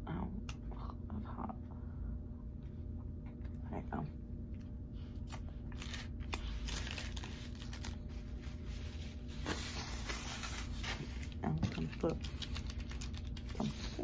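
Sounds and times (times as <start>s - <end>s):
paper tearing: 5.7s - 8.0s
paper wrapper rustling and crinkling: 5.7s - 14.0s.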